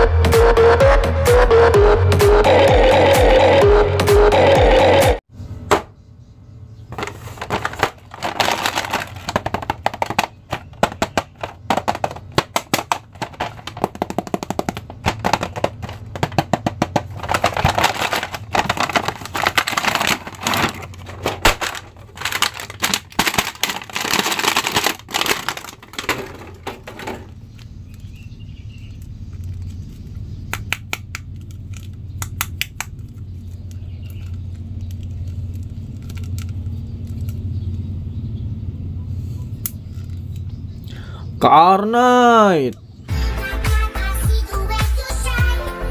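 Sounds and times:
plastic packaging crackling: 7.0s - 28.2s, 32.8s - 37.3s.

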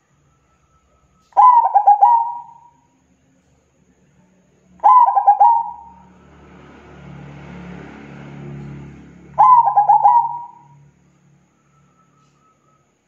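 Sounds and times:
dove cooing: 1.4s - 2.7s, 4.8s - 6.0s, 9.4s - 10.8s.

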